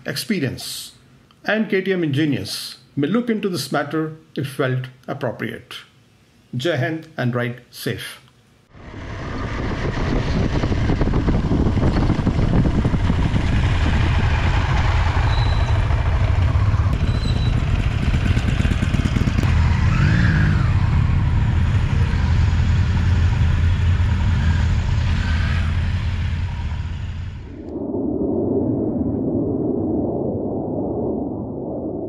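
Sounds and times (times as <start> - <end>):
wind noise: 8.7 - 23.4, 24.0 - 32.0
motorcycle engine running: 8.8 - 27.4.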